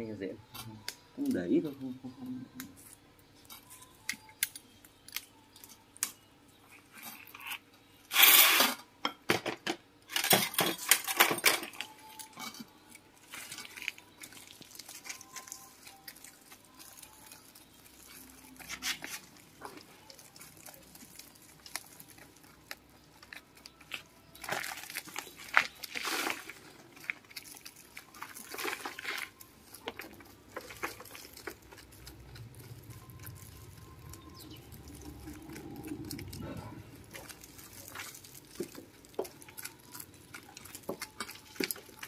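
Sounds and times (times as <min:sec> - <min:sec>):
metal pick scraping soil: 0:07.5 - 0:08.8.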